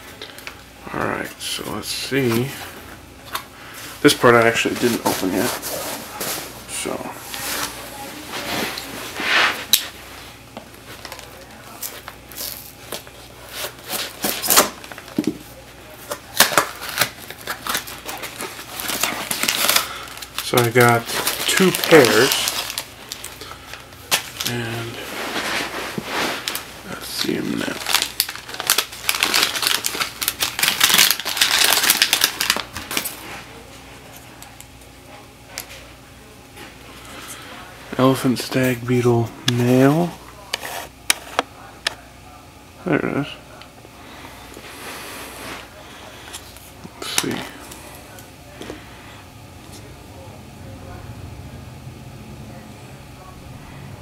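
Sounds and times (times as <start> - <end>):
paper packing rustling: 3.3 - 10.0, 10.8 - 33.7
newspaper crinkling: 10.8 - 33.7.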